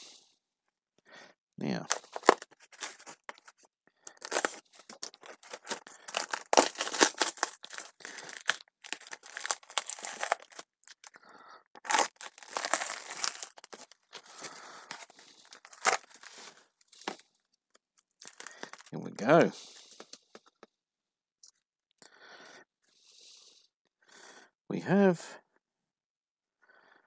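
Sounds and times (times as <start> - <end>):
packing tape tearing and crinkling: 1.9 - 17.2, 18.2 - 18.9.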